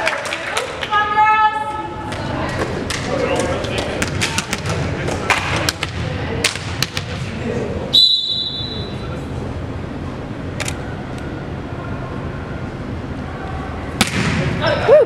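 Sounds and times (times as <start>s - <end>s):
gym hum: 0.0s - 15.0s
referee's whistle blast: 8.0s - 9.0s
sharp smack: 14.0s - 14.5s.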